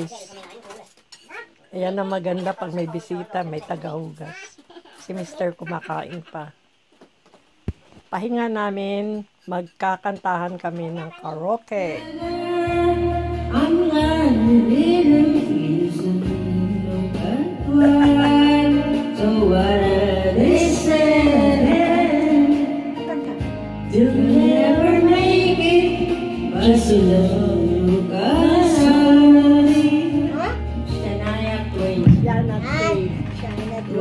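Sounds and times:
women singing karaoke: 11.9s - 34.0s
backing track with bass line: 12.0s - 34.0s.

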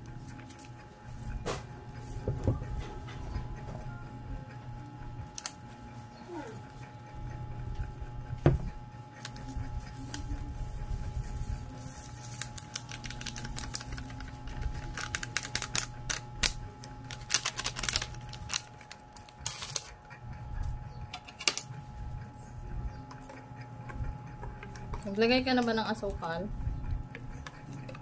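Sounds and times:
plastic sachet crinkling: 9.2s - 20.0s.

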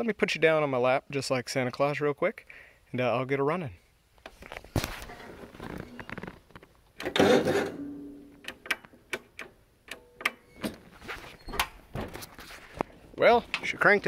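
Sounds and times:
lawn tractor starter cranking: 7.0s - 7.8s.

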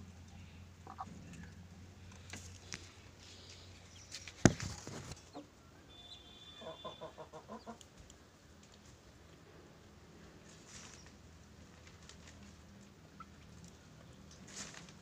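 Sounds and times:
rustling: 0.0s - 5.4s, 10.2s - 12.9s, 14.2s - 15.0s
hen clucking: 0.8s - 1.6s, 4.8s - 5.6s, 6.5s - 7.9s.

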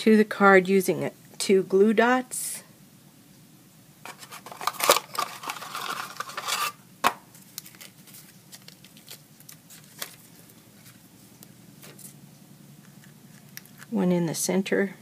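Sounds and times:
rustling: 4.1s - 12.2s.

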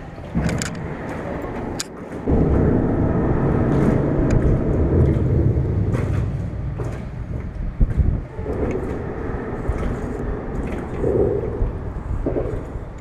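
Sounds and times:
road traffic rumble on bridge: 0.0s - 13.0s.

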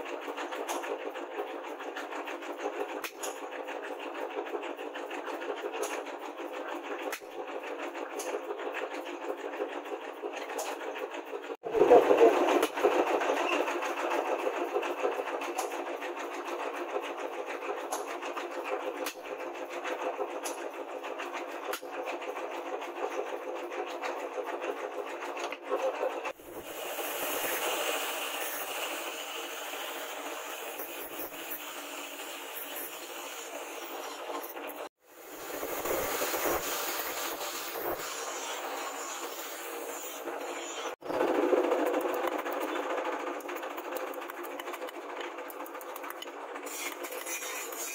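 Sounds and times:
angle grinder cutting steel: 26.4s - 41.0s, 43.4s - 47.9s.

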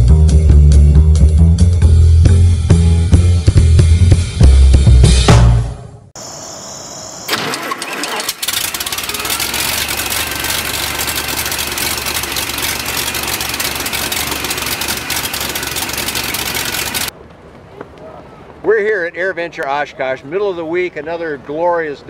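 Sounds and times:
aircraft engine running: 7.2s - 17.1s.

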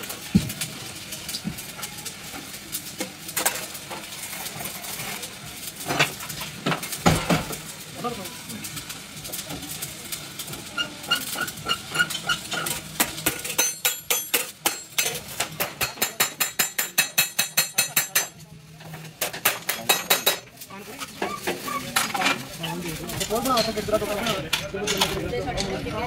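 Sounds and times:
metal tools striking steel: 11.1s - 18.4s, 19.2s - 20.6s.

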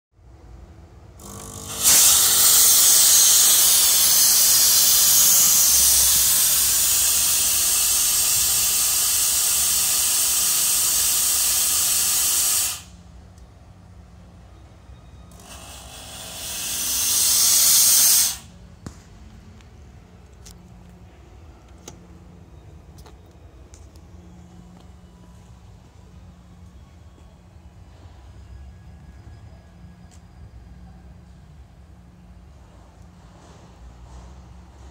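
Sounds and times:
fog machine hissing: 1.2s - 13.0s, 15.4s - 18.5s.

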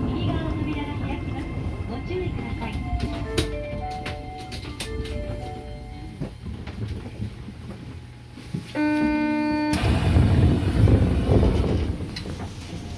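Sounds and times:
tram running rumble: 0.0s - 12.9s
doors sliding open: 9.1s - 12.9s.

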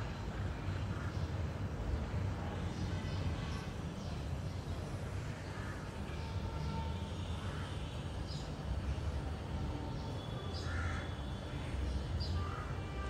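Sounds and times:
crows cawing: 10.6s - 11.2s.

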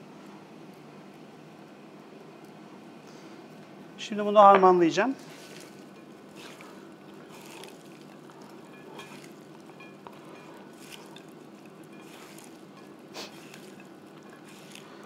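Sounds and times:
hands squishing food in a bowl: 5.2s - 15.0s.

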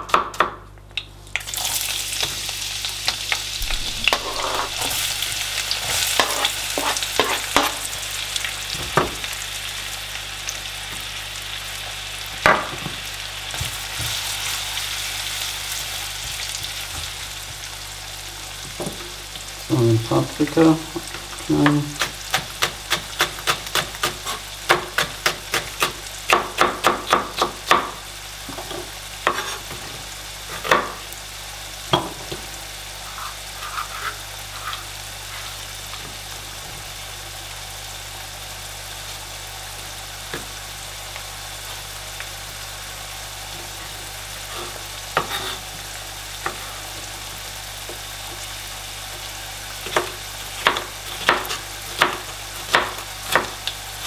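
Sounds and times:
oil sizzling in a pan: 1.0s - 54.0s
knife chopping on plastic board: 21.6s - 28.0s.

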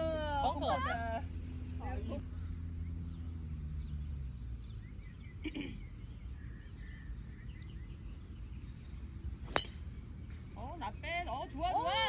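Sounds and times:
low hum: 8.1s - 10.7s.

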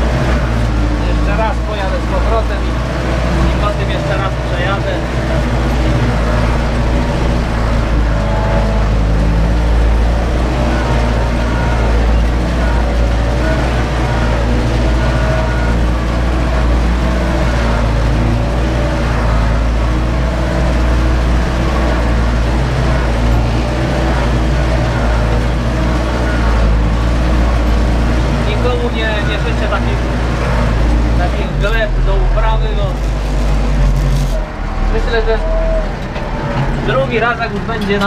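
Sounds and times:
tractor diesel engine under load: 0.0s - 38.0s.

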